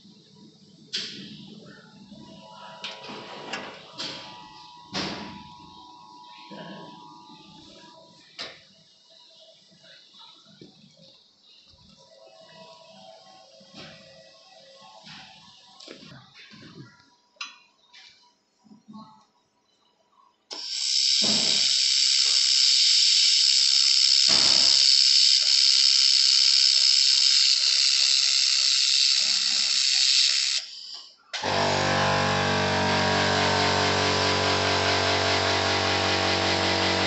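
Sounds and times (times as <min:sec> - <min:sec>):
humming drone of many tones: 0:02.1 - 0:08.2, 0:31.4 - 0:37.0
laser welder hissing: 0:20.5 - 0:37.0.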